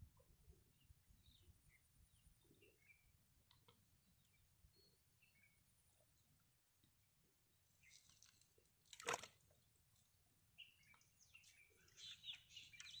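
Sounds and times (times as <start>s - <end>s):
faint high bird chirps: 0.2s - 6.0s, 10.6s - 13.0s.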